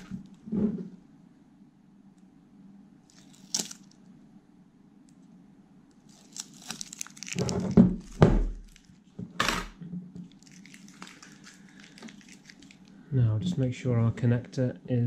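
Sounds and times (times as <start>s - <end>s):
tape tearing and crinkling: 3.1s - 4.0s, 6.1s - 9.0s, 10.3s - 12.9s.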